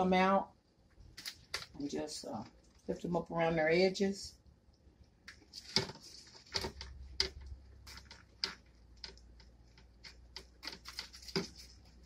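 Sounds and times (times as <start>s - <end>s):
plastic spatula scraping baking sheet: 5.5s - 12.0s.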